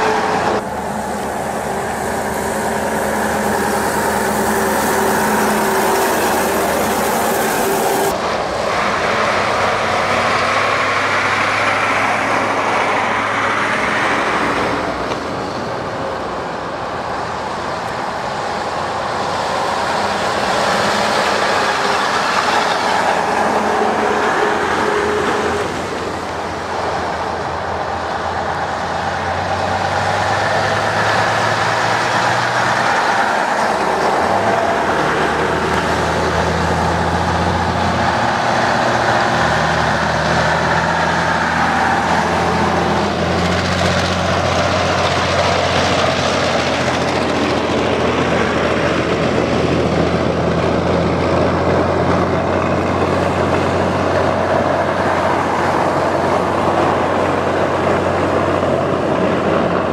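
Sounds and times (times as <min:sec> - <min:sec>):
trucks driving past: 0:00.0 - 0:59.9
tyre noise on wet road: 0:00.0 - 0:59.9.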